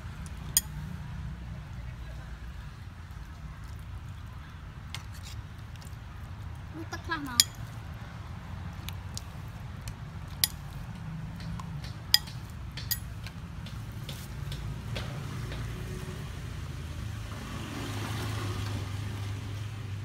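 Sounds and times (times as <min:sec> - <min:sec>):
metal spoon clinking on wok: 0:07.4 - 0:07.7.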